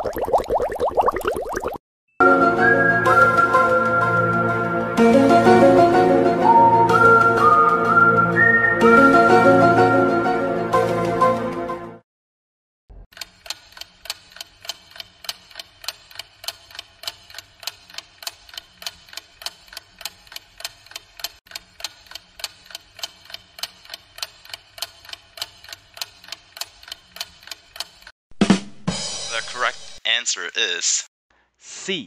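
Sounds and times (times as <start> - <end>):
clock ticking: 13.2 - 28.1.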